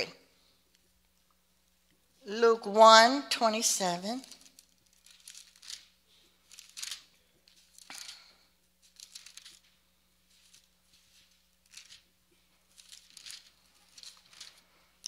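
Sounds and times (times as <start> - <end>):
paper pages being turned: 3.8 - 15.0.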